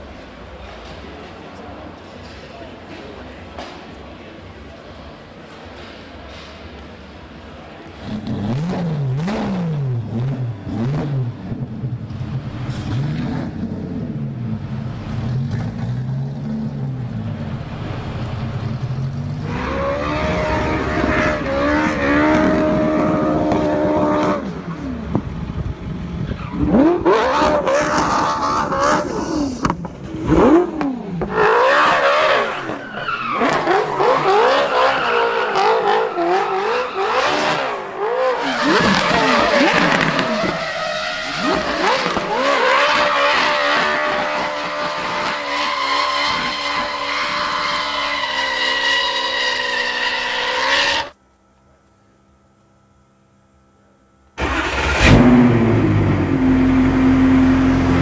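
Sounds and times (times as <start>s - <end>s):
car engine revving high: 8.0s - 17.3s, 18.1s - 25.6s, 26.3s - 51.2s, 54.4s - 58.0s
car engine revving low: 8.0s - 32.5s, 54.4s - 58.0s
tyre squeal: 31.7s - 37.7s.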